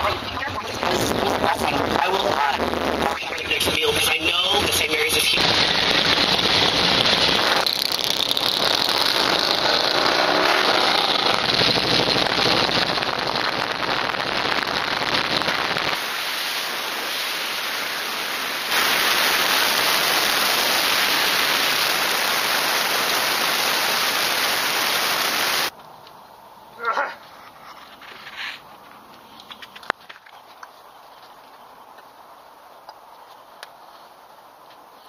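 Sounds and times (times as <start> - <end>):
low rumble: 0.0 - 19.0
wind and road noise on microphone: 0.0 - 35.0.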